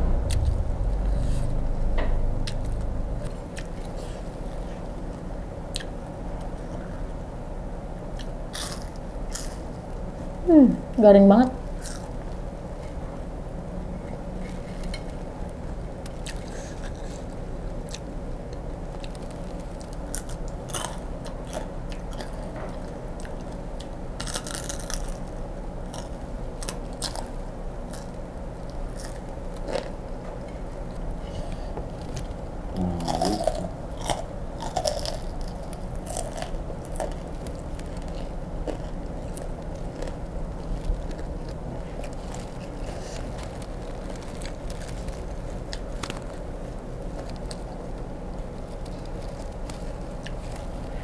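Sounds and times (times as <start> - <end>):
low hum: 0.0 - 8.4
crunching and chewing crispy food: 8.0 - 10.3, 11.6 - 13.0, 14.4 - 51.0.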